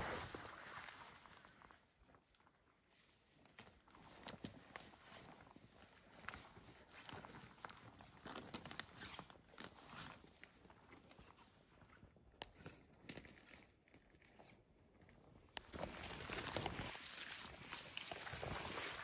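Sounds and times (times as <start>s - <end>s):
footsteps crunching through brush: 15.7s - 19.0s.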